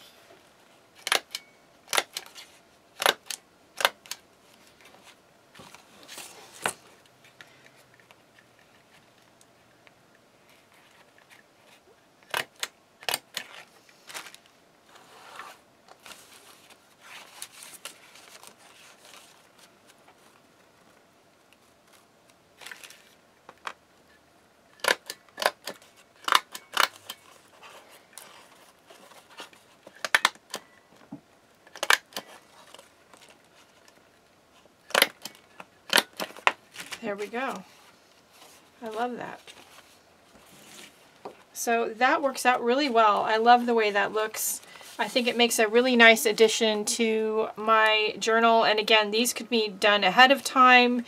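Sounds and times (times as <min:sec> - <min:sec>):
paper rustling: 0:04.5 - 0:09.3, 0:13.2 - 0:23.2, 0:26.9 - 0:30.7, 0:31.7 - 0:41.5.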